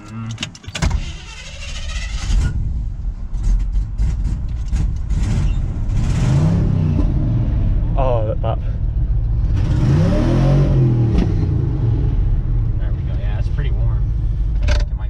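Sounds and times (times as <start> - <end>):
pickup engine cranking and running: 0.0 - 7.2, 12.6 - 15.0.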